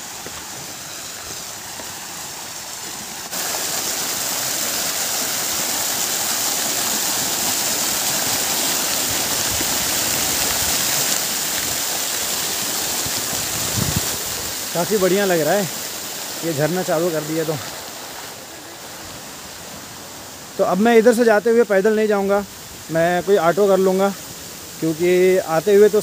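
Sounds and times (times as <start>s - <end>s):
fountain water splashing into pool: 0.0s - 21.1s, 21.7s - 26.0s.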